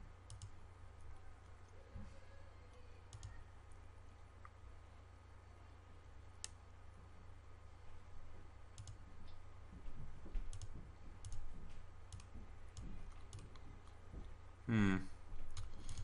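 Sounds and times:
steady low hum: 0.0 - 16.0
computer mouse clicking: 0.3 - 0.6, 3.1 - 3.4, 6.4 - 6.6, 8.8 - 9.0, 10.5 - 11.5, 12.1 - 14.0, 15.5 - 16.0.

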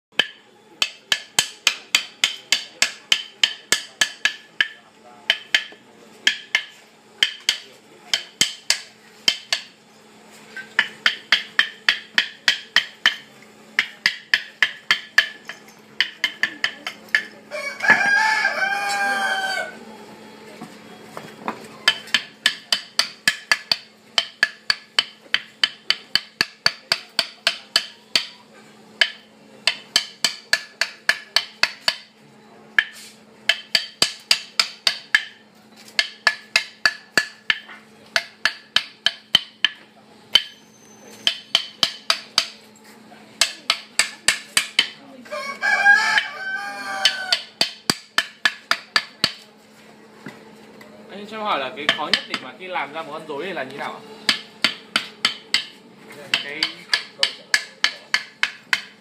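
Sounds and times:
mallet knocking on chisel: 0.2 - 9.8, 10.6 - 18.1, 21.4 - 28.4, 29.0 - 32.1, 32.8 - 40.6, 41.2 - 42.6, 43.4 - 45.0, 46.9 - 49.4, 51.8 - 52.6, 54.2 - 59.0
rooster crowing: 17.5 - 19.9, 45.2 - 47.6.

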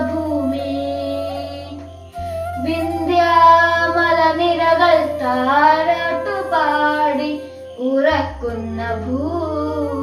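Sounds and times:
boy singing solo: 2.6 - 10.0.

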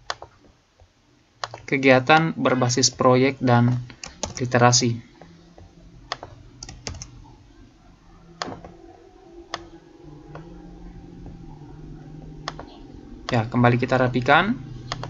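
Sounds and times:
keyboard and mouse clicks: 0.0 - 0.4, 1.4 - 1.7, 3.7 - 4.5, 5.6 - 7.2, 8.4 - 8.7, 12.4 - 13.4
faint low hum: 0.0 - 15.0.

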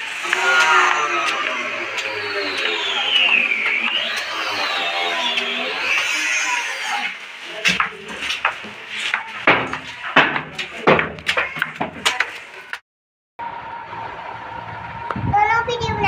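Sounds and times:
footsteps on concrete stairs: 7.5 - 12.8.

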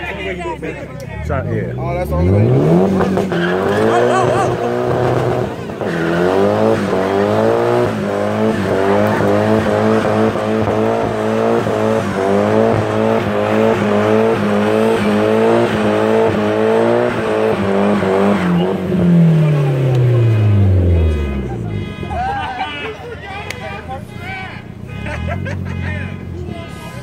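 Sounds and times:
car engine revving high: 1.3 - 22.2.

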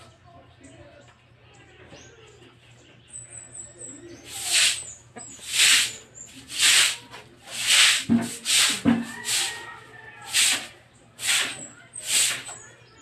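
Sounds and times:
broom sweeping water on concrete: 4.2 - 12.7.

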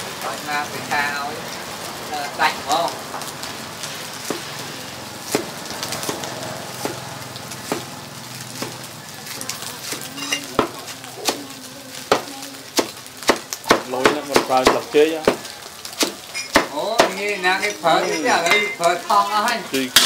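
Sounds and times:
frying sizzle: 0.0 - 20.0.

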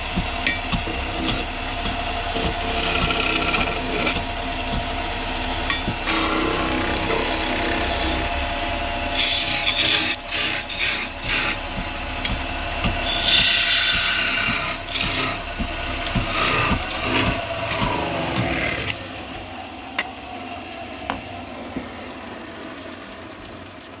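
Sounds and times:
wood lathe running: 0.0 - 24.0
turning tool scraping wood: 0.8 - 4.8, 9.1 - 19.0.

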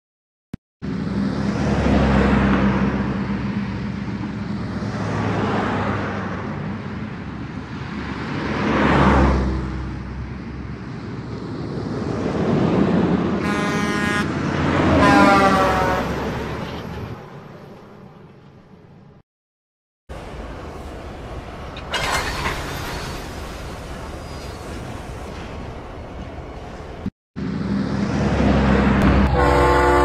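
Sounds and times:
train horn blasts: 13.4 - 14.3, 14.9 - 16.2, 29.0 - 30.0
train engine rumbling: 20.1 - 30.0.

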